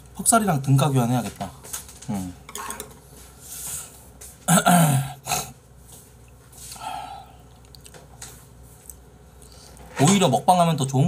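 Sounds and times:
man burping: 0:04.5 - 0:05.5.

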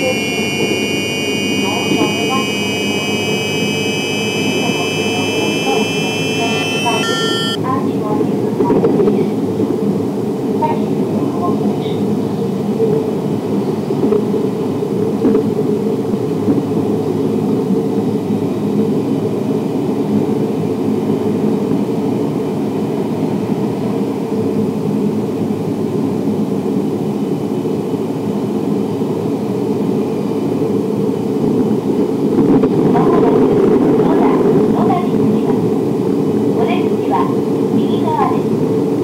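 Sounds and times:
faint high motor whine: 0:00.0 - 0:07.6.

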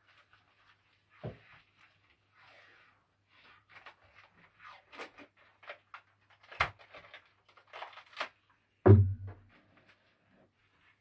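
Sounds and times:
wrapping material rustling: 0:00.0 - 0:08.7
heavy thump into cardboard box: 0:08.9 - 0:09.5.

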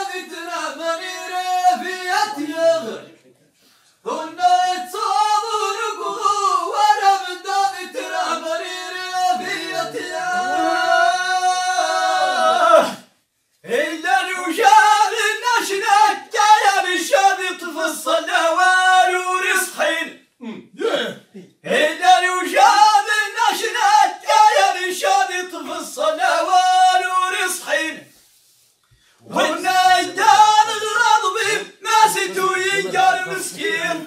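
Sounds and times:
man chanting unaccompanied: 0:00.0 - 0:03.3, 0:04.1 - 0:12.9, 0:13.6 - 0:28.1, 0:29.2 - 0:34.0.

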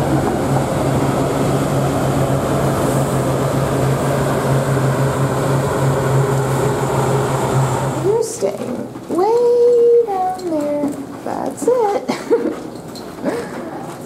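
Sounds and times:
diesel bus engine running: 0:00.0 - 0:08.3.

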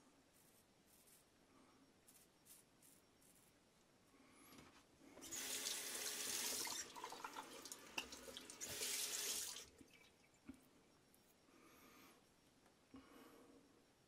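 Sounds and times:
water tap running into sink: 0:05.2 - 0:09.7.

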